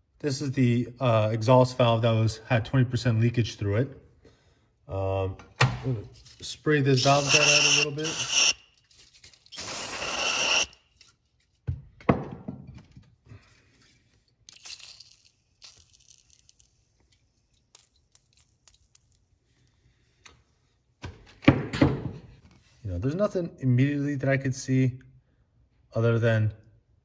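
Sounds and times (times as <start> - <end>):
aerosol spray hiss: 7.0 - 8.6, 9.6 - 10.7.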